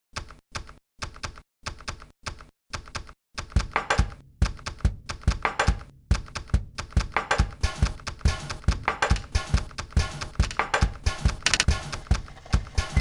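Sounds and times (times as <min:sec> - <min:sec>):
marker scratchy clicks: 0:11.4 - 0:11.7.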